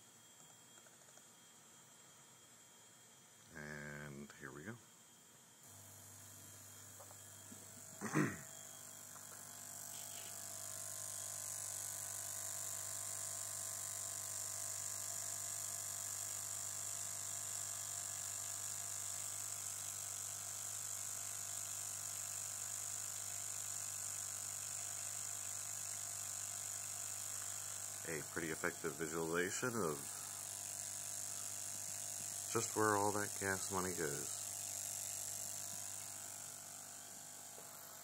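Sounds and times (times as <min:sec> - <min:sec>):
fuel injectors buzzing: 0:09.2 - 0:14.5, 0:24.4 - 0:38.0.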